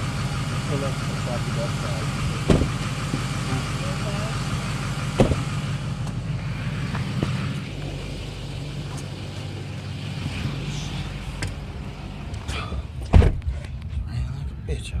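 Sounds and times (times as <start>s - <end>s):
vehicle engine rumbling: 0.0s - 15.0s
loud thump: 2.4s - 3.2s, 5.2s - 5.5s, 13.0s - 13.6s.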